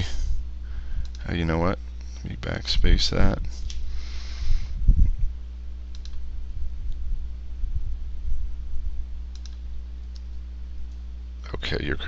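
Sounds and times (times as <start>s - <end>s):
low electrical hum: 0.0s - 12.0s
keyboard and mouse clicks: 5.9s - 6.2s, 9.3s - 11.0s.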